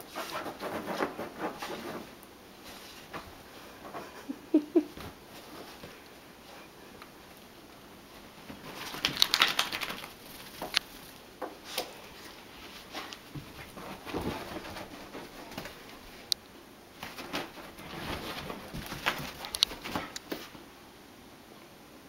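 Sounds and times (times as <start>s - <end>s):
fabric rustling and scratching: 0.0s - 3.3s, 12.1s - 16.3s, 17.0s - 20.6s
dog claws clicking: 8.8s - 10.9s.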